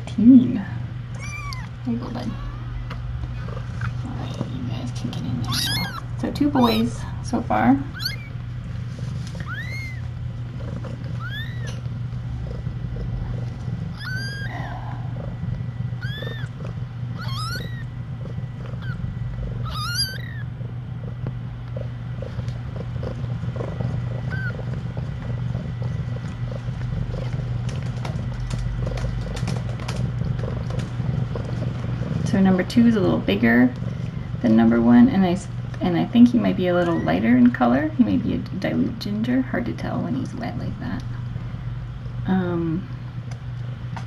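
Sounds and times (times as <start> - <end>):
low steady hum: 0.0 - 44.0
kittens mewing: 1.1 - 1.8, 5.4 - 7.2, 7.8 - 8.6, 9.3 - 32.3.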